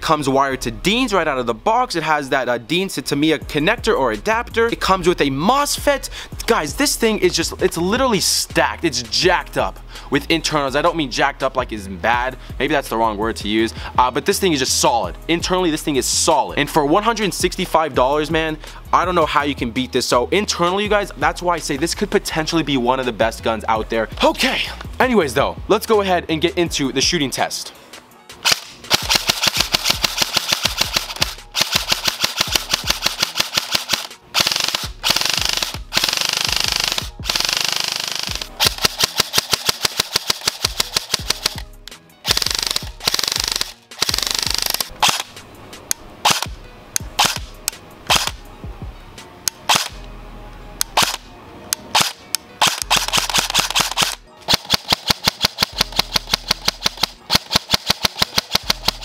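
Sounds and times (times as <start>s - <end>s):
airsoft rifle full-auto bursts: 28.4s - 41.6s, 42.2s - 45.3s, 46.2s - 46.5s, 47.2s - 47.5s, 48.1s - 48.4s, 49.7s - 50.0s, 51.0s - 51.2s, 51.9s - 59.0s
airsoft rifle single shots: 28.4s - 41.6s, 42.3s - 45.3s, 46.2s - 46.5s, 47.2s - 47.5s, 48.1s - 48.4s, 50.9s - 51.2s, 51.9s - 59.0s.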